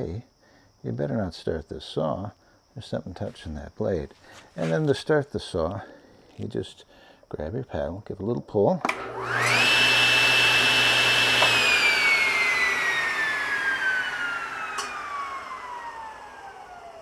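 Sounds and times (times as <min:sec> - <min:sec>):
saw blade winding down: 0:08.9 - 0:17.0
table saw motor whine: 0:08.9 - 0:17.0.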